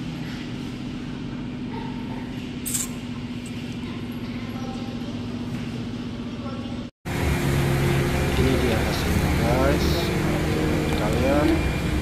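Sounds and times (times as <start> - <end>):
machine hum: 2.6 - 12.0.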